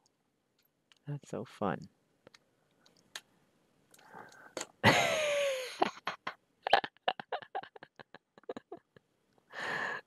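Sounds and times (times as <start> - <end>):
man laughing: 4.8 - 9.0.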